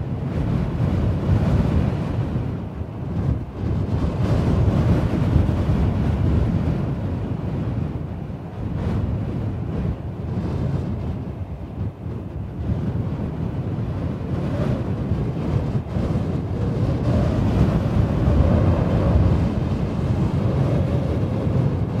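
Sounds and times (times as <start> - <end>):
strong wind howling: 0.0 - 22.0.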